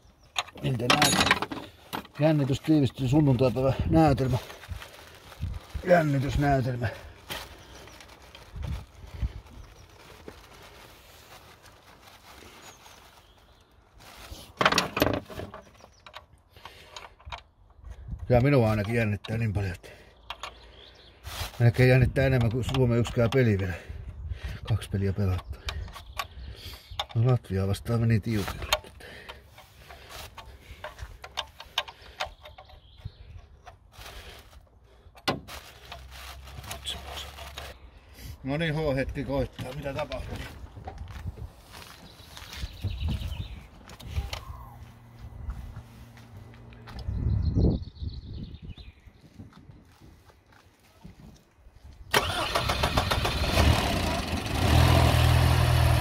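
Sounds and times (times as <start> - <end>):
wrench clinking and rattling: 0.4 - 2.2.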